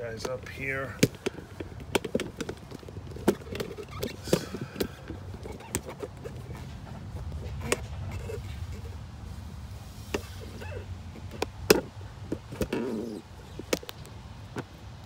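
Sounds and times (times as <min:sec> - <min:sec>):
camera handling clicks and knocks: 0:01.0 - 0:06.3.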